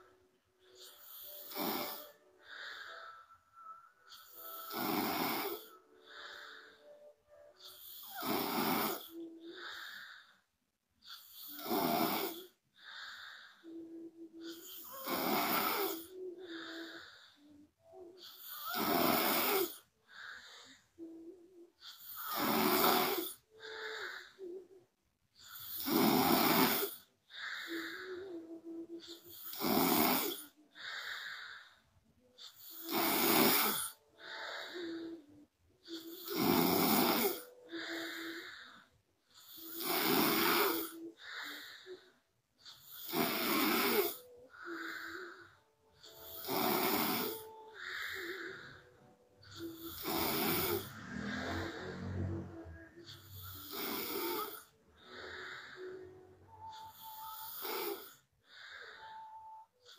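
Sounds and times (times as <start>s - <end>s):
woman snoring: 0.0s - 3.2s, 4.1s - 10.4s, 11.0s - 24.8s, 25.4s - 31.8s, 32.4s - 59.9s
quiet breath: 0.0s - 59.9s
faint steady tone: 44.1s - 59.9s.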